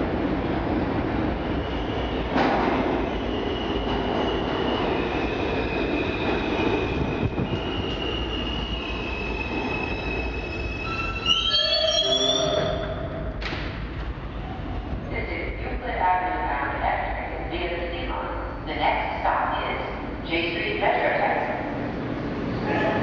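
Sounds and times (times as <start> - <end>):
subway train wheels rumbling: 0.0 - 23.0
high wheel squeal: 7.6 - 13.0.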